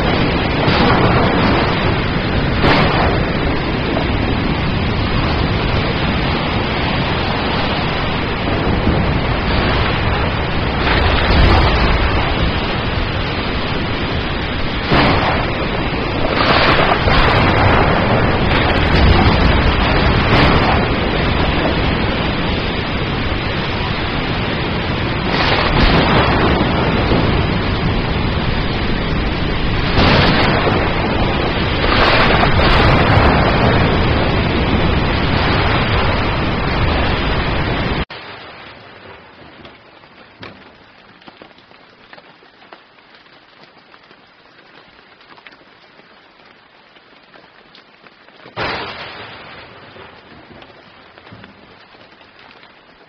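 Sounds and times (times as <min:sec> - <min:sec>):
thunder: 0:00.0 - 0:38.0
heavy rainstorm: 0:00.0 - 0:53.0
light rain: 0:00.0 - 0:53.0
raindrop ticks: 0:39.0 - 0:48.7, 0:49.4 - 0:53.0.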